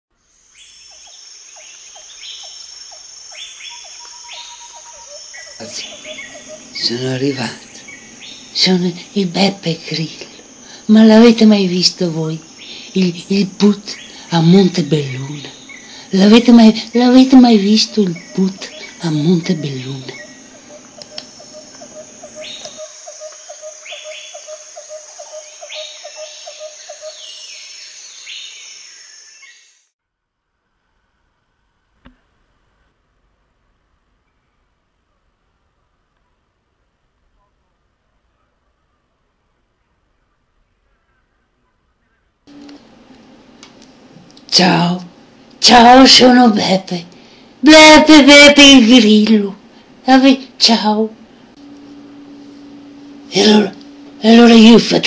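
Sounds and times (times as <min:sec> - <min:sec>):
high insect hiss: 0:00.1 - 0:29.9, 0:42.5 - 0:55.0
crickets chirping: 0:00.2 - 0:29.9, 0:42.5 - 0:55.0
bird-like calls: 0:00.5 - 0:29.8
clicking chirp: 0:20.1 - 0:23.4.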